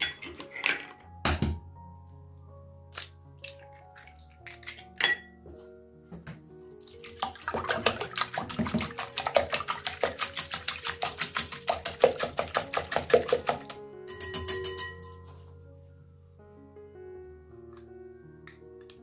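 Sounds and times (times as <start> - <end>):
soft background music: 0.0 - 19.0
whisking liquid in a bowl: 6.8 - 15.1.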